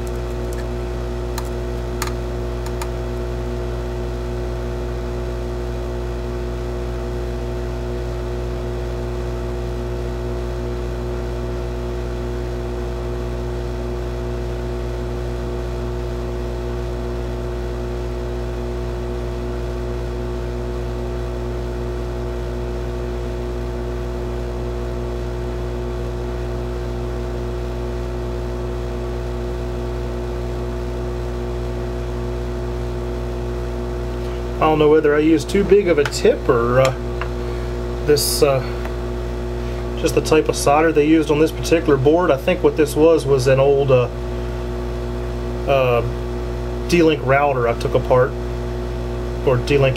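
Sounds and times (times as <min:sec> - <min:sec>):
hot air station whirring: 0:00.0 - 0:04.4, 0:33.5 - 0:49.9.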